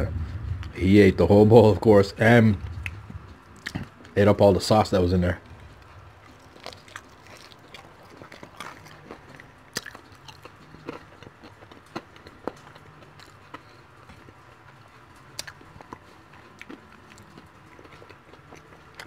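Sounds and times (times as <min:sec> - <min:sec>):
person chewing: 0:02.7 - 0:04.2, 0:05.6 - 0:19.0.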